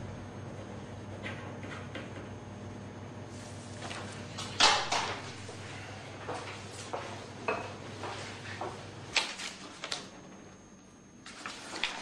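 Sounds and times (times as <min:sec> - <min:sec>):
low room hum: 0:00.0 - 0:12.0
footsteps walking: 0:03.3 - 0:04.6, 0:05.2 - 0:08.9
papers being gathered: 0:11.2 - 0:12.0.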